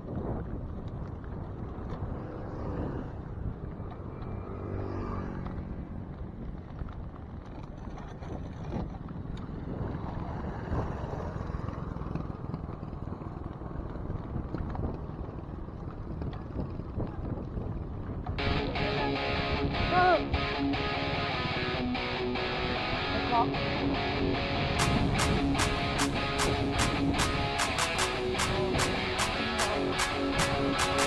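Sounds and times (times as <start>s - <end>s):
bicycle riding rumble: 0.0s - 31.0s
motor vehicle passing: 1.4s - 15.4s, 18.4s - 31.0s.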